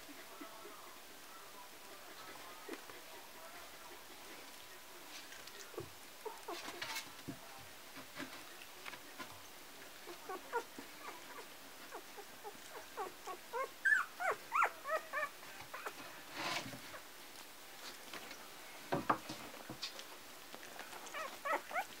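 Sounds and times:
rustling: 0:04.0 - 0:22.0
puppy whimpering and squeaking: 0:10.1 - 0:16.0, 0:21.1 - 0:22.0.

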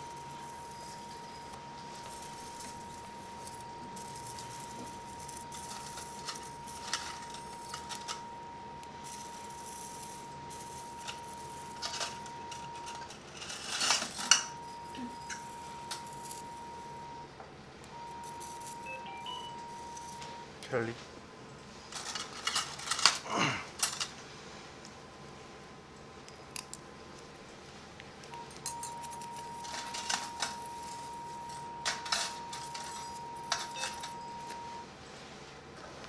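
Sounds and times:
steady high electronic tone: 0:00.0 - 0:13.1, 0:14.3 - 0:20.6
metal surgical instruments clinking: 0:28.4 - 0:34.7.

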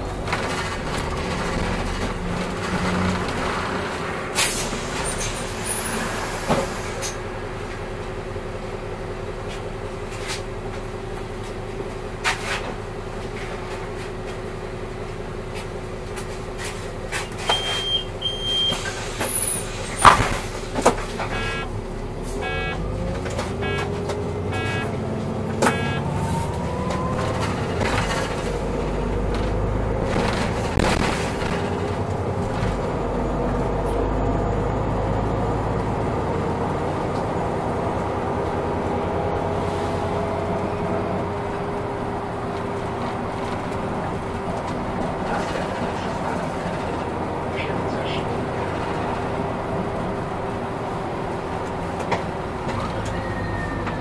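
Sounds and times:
bus engine humming and whining: 0:00.0 - 0:54.0
rattles and knocks: 0:00.1 - 0:03.6
short electronic beep: 0:17.5 - 0:18.8, 0:21.3 - 0:21.7, 0:22.4 - 0:22.8, 0:23.6 - 0:25.0, 0:25.6 - 0:26.2.

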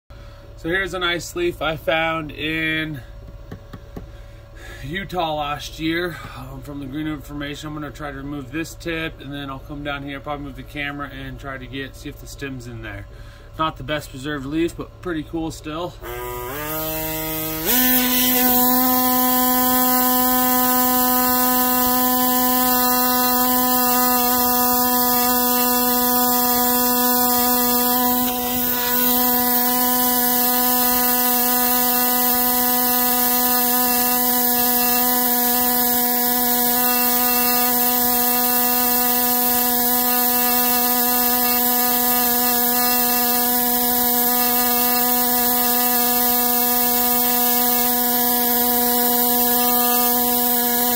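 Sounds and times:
air scribe buzzing: 0:16.0 - 0:50.9.

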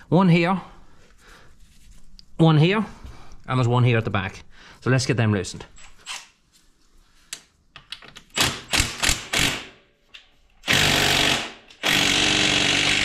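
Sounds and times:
impact wrench hammering: 0:08.4 - 0:09.8.

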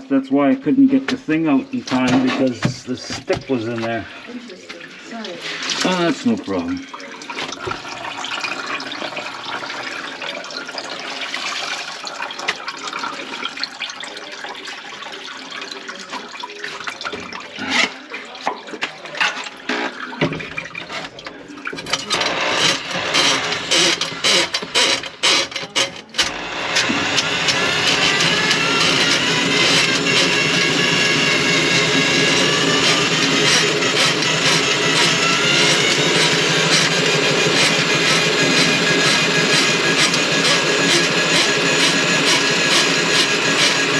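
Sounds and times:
water draining through sink: 0:00.4 - 0:43.9
sharp clicks and clatter: 0:21.0 - 0:43.9.

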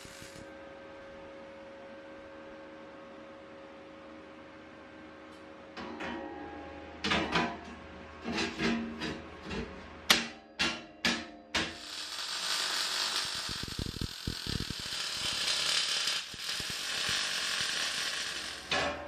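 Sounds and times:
welder crackling hiss: 0:00.0 - 0:00.5, 0:11.7 - 0:18.7.

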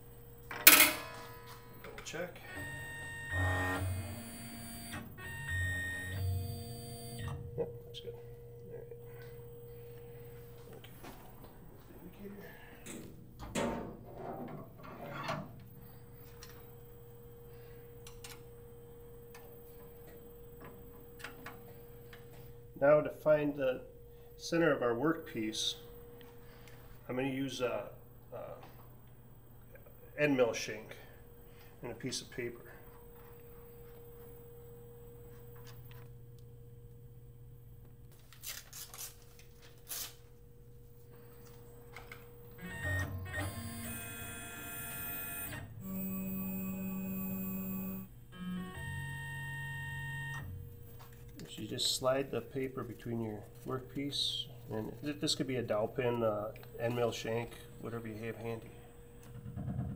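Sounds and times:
faint steady hum: 0:00.0 - 0:59.9
paper rustling and tearing: 0:38.2 - 0:40.3.

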